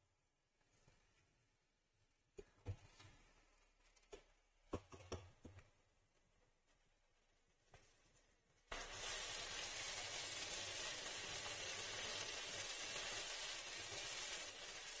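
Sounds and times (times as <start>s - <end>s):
food sizzling in a pan: 8.7s - 15.0s.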